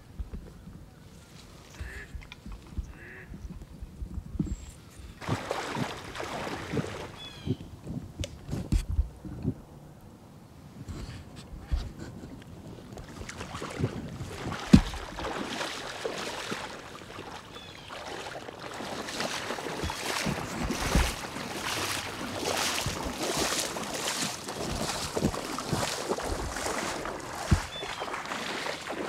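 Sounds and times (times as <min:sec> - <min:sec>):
water sloshing from wading: 0:04.4 - 0:08.6, 0:11.0 - 0:29.0.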